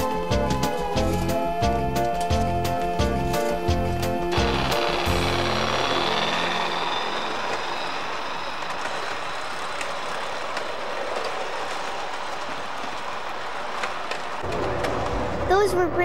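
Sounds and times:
music: 0:00.0 - 0:08.0
model train rumbling on track: 0:00.0 - 0:16.0
wheels clicking over rail joints: 0:04.5 - 0:15.9.

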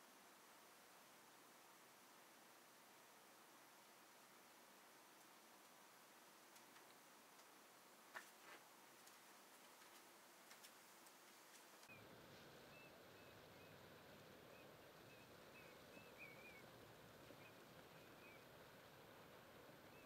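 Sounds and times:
steady hiss: 0:00.0 - 0:20.0
faint ticks: 0:06.5 - 0:11.9
small birds chirping: 0:09.1 - 0:20.0.

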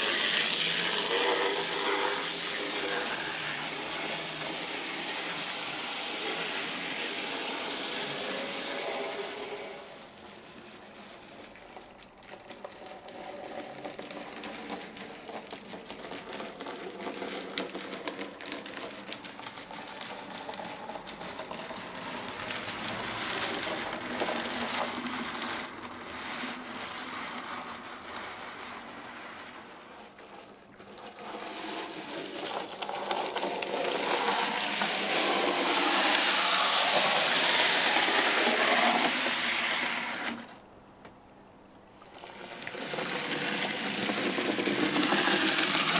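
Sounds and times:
model train motor whirring: 0:00.0 - 0:40.6, 0:42.0 - 0:45.9
wheels clicking on rails: 0:00.0 - 0:45.9.

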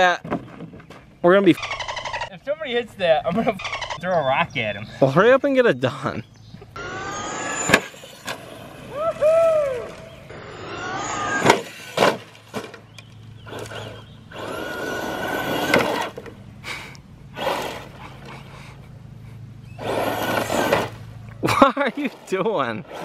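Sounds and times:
electric motor whining: 0:01.6 - 0:02.4, 0:06.7 - 0:12.2, 0:12.9 - 0:16.4, 0:17.3 - 0:18.5, 0:19.6 - 0:21.4
tyres spinning on gravel: 0:06.8 - 0:16.4, 0:19.7 - 0:23.0.

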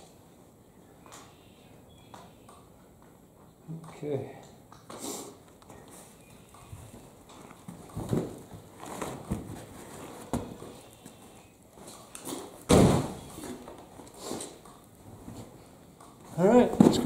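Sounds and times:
carpet thumps and scrapes: 0:07.7 - 0:10.7, 0:16.7 - 0:17.0.

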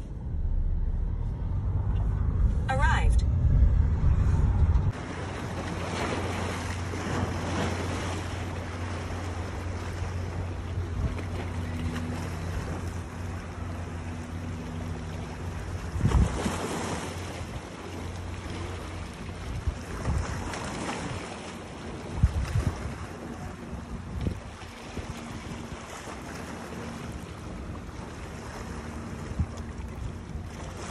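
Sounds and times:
wind on microphone: 0:00.0 - 0:07.6, 0:15.7 - 0:17.6, 0:19.3 - 0:26.0
steady low hum: 0:00.0 - 0:30.9
water sloshing: 0:04.1 - 0:30.9.

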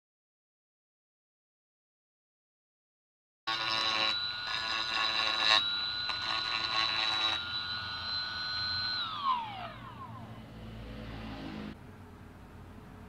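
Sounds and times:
electric motor high-pitched whine: 0:03.5 - 0:11.8.

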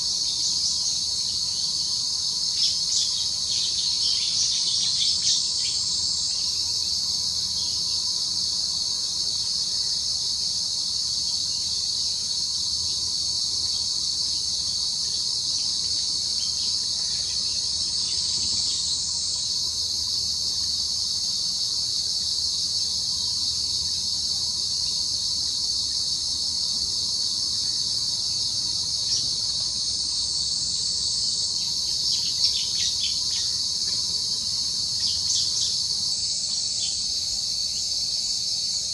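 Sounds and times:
insects chorus: 0:00.0 - 0:38.9.

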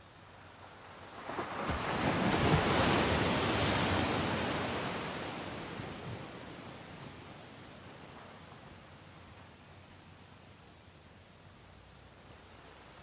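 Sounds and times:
wave washing onto beach: 0:00.6 - 0:09.5.

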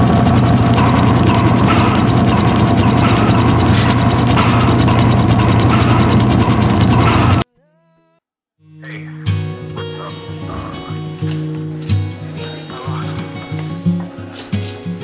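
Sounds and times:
fast mechanical clicking rattle: 0:00.0 - 0:07.4.

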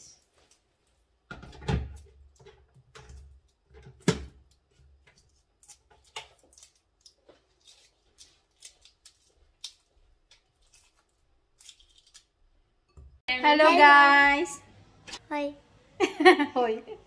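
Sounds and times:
eggshell cracking while peeled: 0:05.6 - 0:12.4.

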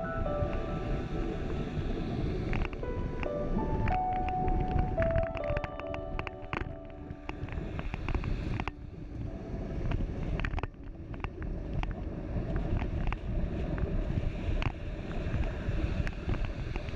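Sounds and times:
wind buffeting microphone: 0:00.0 - 0:16.9.

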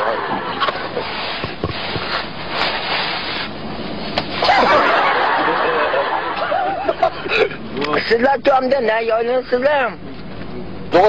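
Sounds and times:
people laughing: 0:00.0 - 0:01.3, 0:04.4 - 0:08.1.

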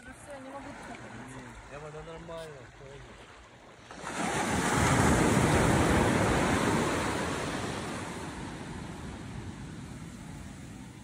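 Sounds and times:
sea wave breaking on beach: 0:03.9 - 0:11.0.

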